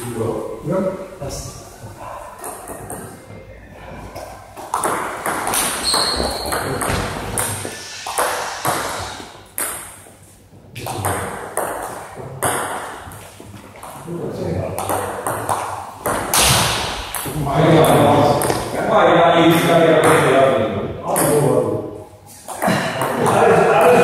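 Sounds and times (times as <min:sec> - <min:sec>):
table tennis ball hitting bats: 0:02.4 - 0:03.2, 0:04.6 - 0:10.2, 0:10.8 - 0:14.1, 0:14.7 - 0:18.8, 0:19.5 - 0:20.4, 0:22.4 - 0:24.0
ball bouncing on table: 0:04.6 - 0:08.9, 0:10.8 - 0:13.2, 0:14.8 - 0:18.7.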